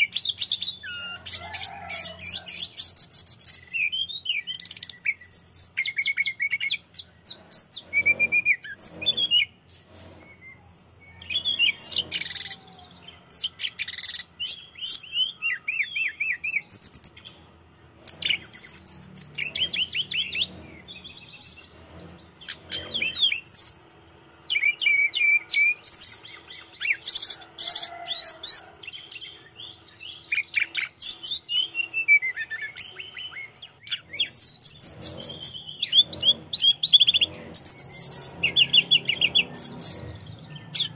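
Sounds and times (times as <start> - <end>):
bird song with chirps and trills: 0.0 - 40.9.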